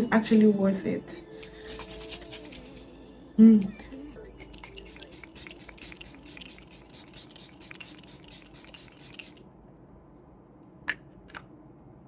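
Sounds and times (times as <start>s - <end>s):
spray bottle misting: 1.4s - 2.9s, 4.4s - 9.4s.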